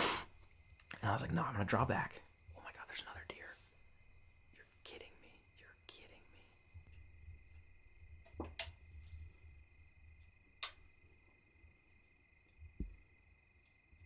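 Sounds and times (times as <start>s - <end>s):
crickets chirping: 0.0s - 14.0s
sharp clicks: 10.6s - 10.8s
dull low thump: 12.7s - 13.0s.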